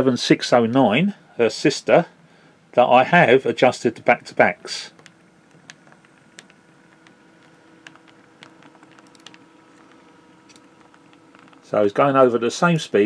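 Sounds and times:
faint motor hum: 0.0s - 13.0s
wheels clicking over rail joints: 4.3s - 13.0s.

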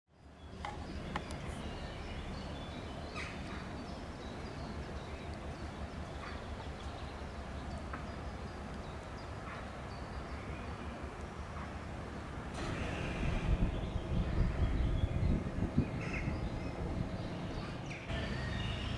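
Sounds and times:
low background noise: 0.1s - 18.9s
bird calls: 0.3s - 18.9s.

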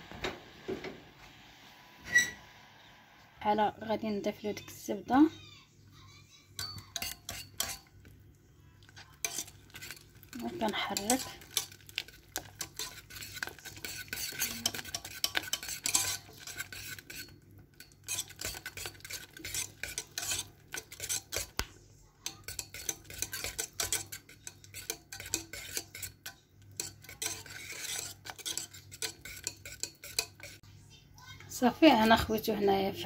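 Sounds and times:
utensil scraping metal saucepan: 2.0s - 2.5s, 6.6s - 8.1s, 9.0s - 21.6s, 22.2s - 30.6s.

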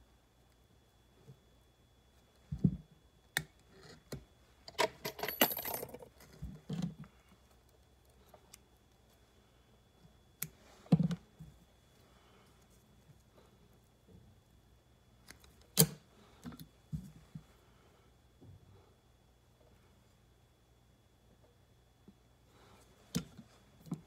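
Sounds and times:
small tools jingling: 5.1s - 6.0s.

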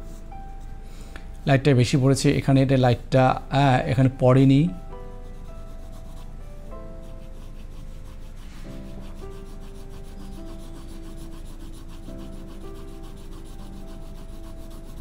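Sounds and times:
pencil scratching on paper: 0.0s - 0.8s, 5.0s - 15.0s
soft background music: 0.0s - 15.0s.

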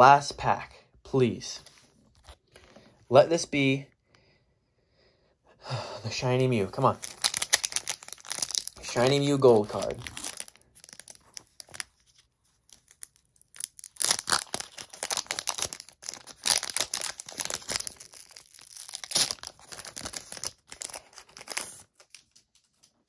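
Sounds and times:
foil wrapper tearing and crinkling: 6.8s - 22.4s.

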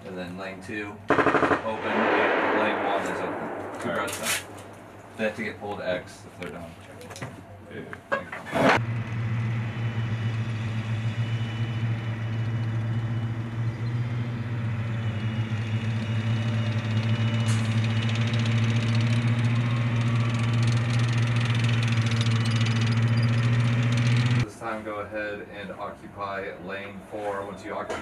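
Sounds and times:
tracked vehicle diesel engine running: 8.7s - 24.8s.

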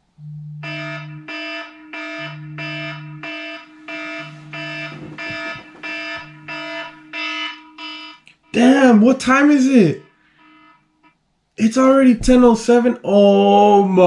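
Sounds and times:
phone vibration buzzing on bed: 0.0s - 11.0s
phone alarm beeping: 0.2s - 11.1s.

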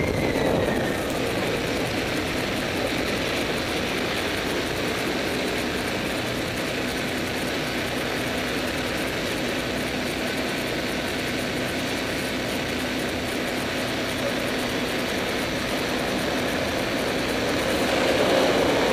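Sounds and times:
bus diesel engine idling: 0.0s - 18.9s.

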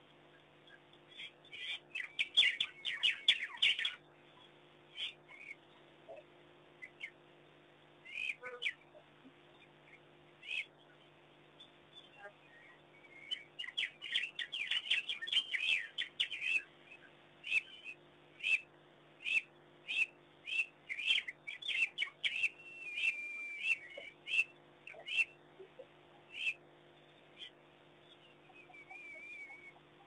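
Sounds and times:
wild dogs twittering: 21.0s - 26.6s, 28.2s - 30.0s.

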